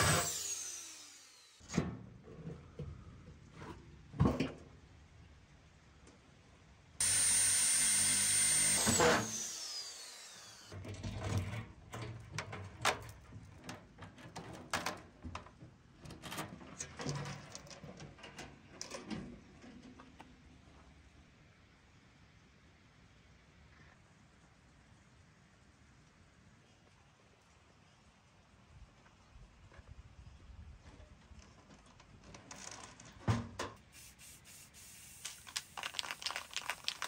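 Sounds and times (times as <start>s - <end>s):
power tool whine: 0.0s - 1.6s, 7.0s - 10.8s.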